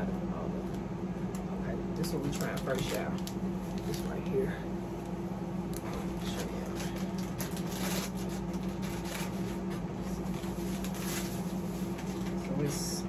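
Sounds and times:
steady low hum: 0.0 - 13.0
plastic wrapper crinkling: 2.0 - 4.4, 5.7 - 12.7.

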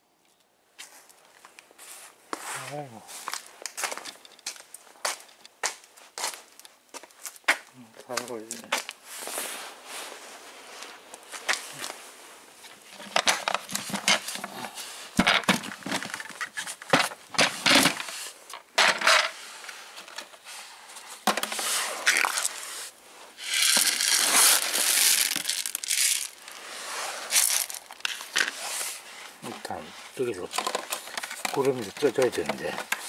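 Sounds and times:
kibble pouring into metal bowl: 23.4 - 26.4.

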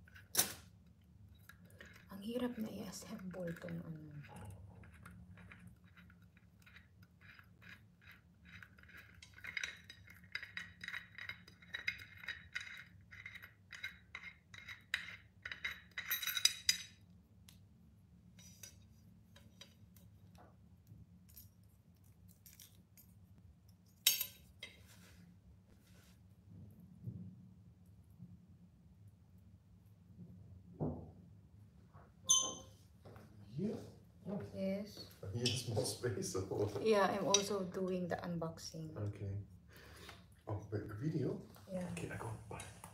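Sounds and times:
metal parts clinking on glass lid: 8.9 - 16.9.

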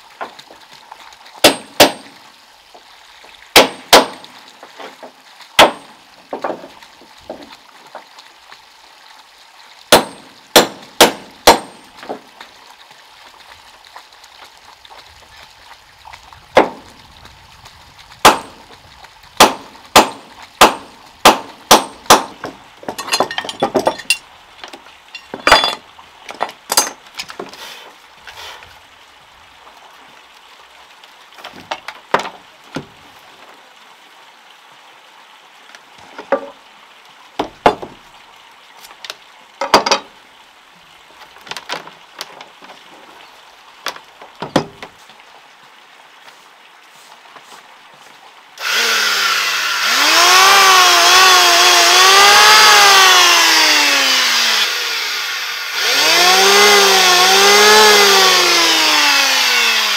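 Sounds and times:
hammer striking nails in wood: 1.4 - 2.1, 3.6 - 4.3, 5.6 - 6.6, 9.9 - 12.2, 18.2 - 18.5, 19.4 - 23.9.

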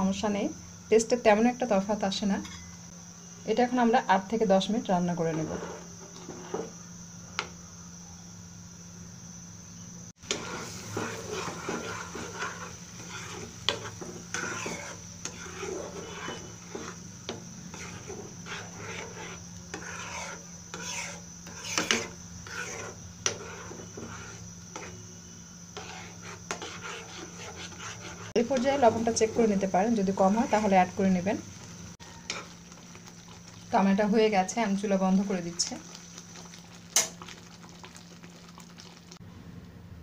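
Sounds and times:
steady hum: 0.0 - 40.0
metal spoon scraping pan: 10.3 - 25.0, 25.8 - 30.9.

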